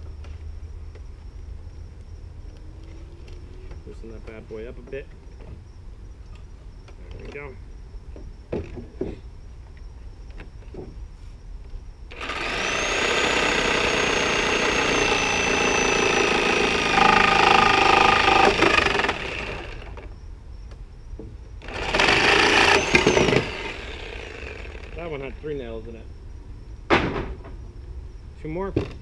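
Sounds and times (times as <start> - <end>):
reciprocating saw cutting nails: 12.1 - 20.1, 21.6 - 25.0.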